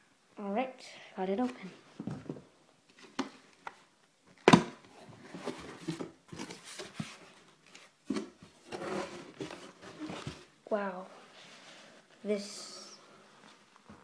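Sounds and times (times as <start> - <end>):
rustling and scraping: 4.9 - 10.5
cardboard box being handled: 5.2 - 10.5.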